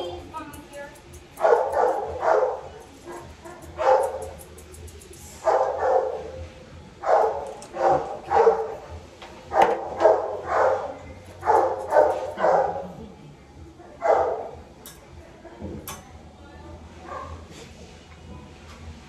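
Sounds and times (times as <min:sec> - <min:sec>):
dog barking: 0:01.4 - 0:04.4, 0:05.4 - 0:06.4, 0:07.0 - 0:13.0, 0:14.0 - 0:14.6.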